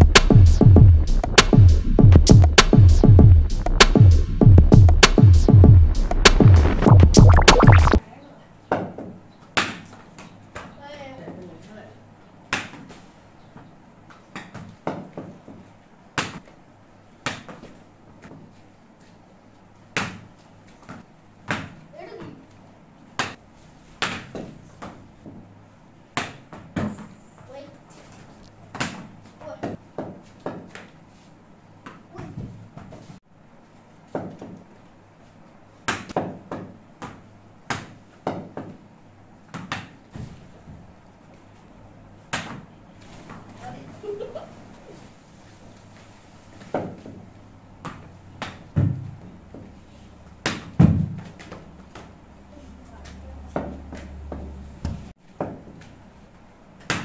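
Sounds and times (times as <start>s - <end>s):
ball bouncing off floor and walls: 14.1s - 15.6s, 16.2s - 16.5s, 17.2s - 18.5s, 19.9s - 22.4s, 24.0s - 25.4s, 26.2s - 27.2s, 28.7s - 31.0s, 34.1s - 34.6s, 35.9s - 38.8s, 39.4s - 40.8s, 47.8s - 49.7s, 50.4s - 52.1s.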